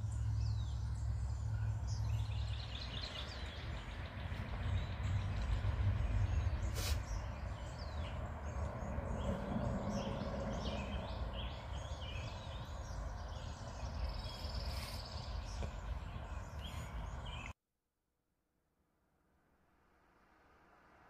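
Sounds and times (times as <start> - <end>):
low outdoor rumble: 0.0 - 14.5
birds chirping and calling: 0.0 - 17.5.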